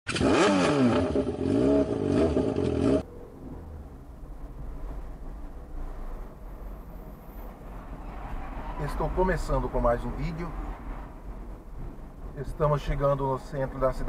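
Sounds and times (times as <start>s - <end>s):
motorcycle engine revving: 0.1s - 3.1s.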